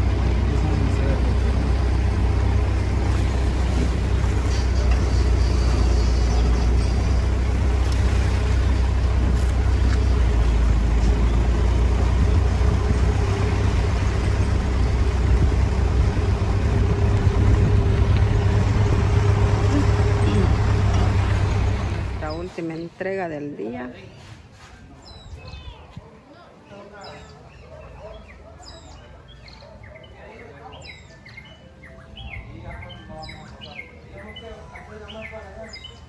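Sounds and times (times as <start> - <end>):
car engine and road noise: 0.0 - 23.0.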